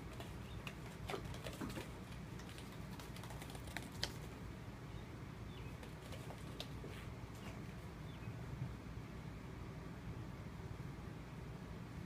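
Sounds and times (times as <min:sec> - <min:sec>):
kittens' paws clicking and tapping: 0:00.0 - 0:04.4, 0:05.7 - 0:07.8
steady low hum: 0:00.0 - 0:12.0.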